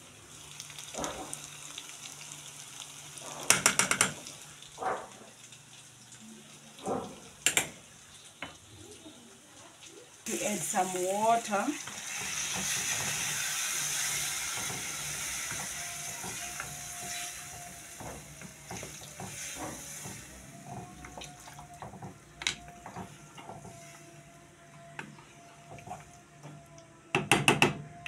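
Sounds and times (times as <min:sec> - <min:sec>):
beef sizzling in a pot: 0:00.0 - 0:26.6
wooden spoon scraping a pot: 0:11.9 - 0:24.2.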